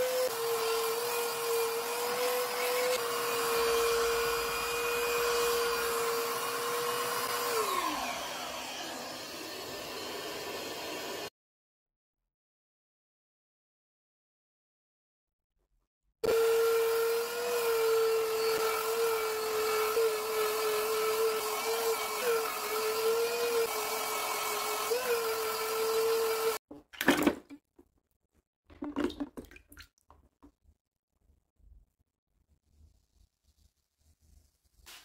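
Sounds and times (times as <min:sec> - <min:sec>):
electric power tool whining: 0:00.0 - 0:11.3, 0:16.2 - 0:26.6.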